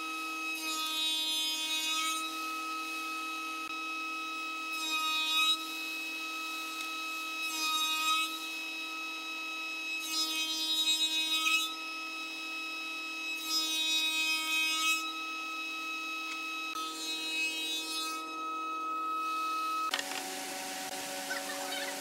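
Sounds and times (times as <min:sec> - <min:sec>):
woodworking machine motor whining: 0:15.0 - 0:22.0.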